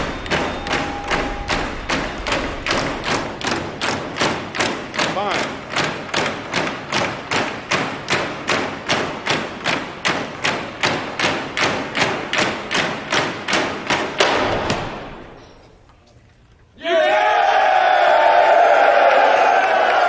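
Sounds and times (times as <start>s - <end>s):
people shouting: 0.0s - 3.3s, 16.8s - 20.0s.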